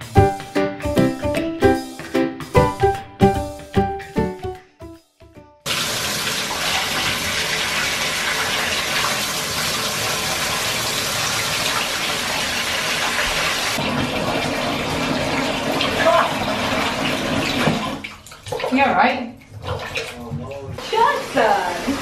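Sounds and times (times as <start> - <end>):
keyboard intro music: 0.0 - 5.7
water running into bathtub: 5.6 - 22.0.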